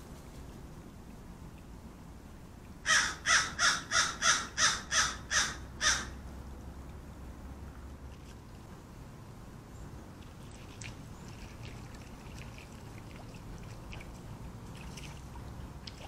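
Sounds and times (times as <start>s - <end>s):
crow cawing: 2.9s - 6.2s.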